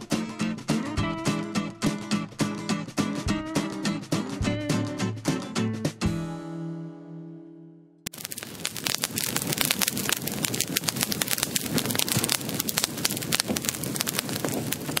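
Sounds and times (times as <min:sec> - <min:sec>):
fire crackling and popping: 0:08.1 - 0:15.0.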